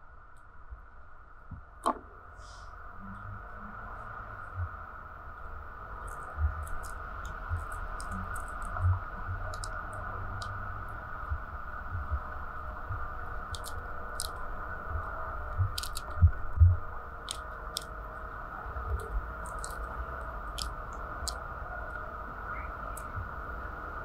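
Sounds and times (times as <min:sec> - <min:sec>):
pomegranate rind snapping and crackling: 0:06.0 - 0:08.8, 0:09.4 - 0:10.6, 0:13.2 - 0:14.8, 0:15.4 - 0:18.3, 0:18.9 - 0:22.1.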